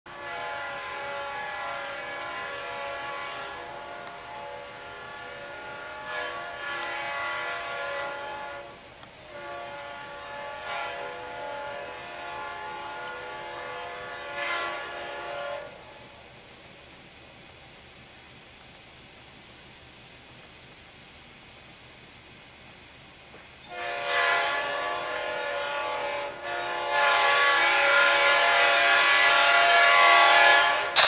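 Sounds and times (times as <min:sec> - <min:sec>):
locomotive air horn chord: 0:00.1 - 0:16.3, 0:23.6 - 0:31.0.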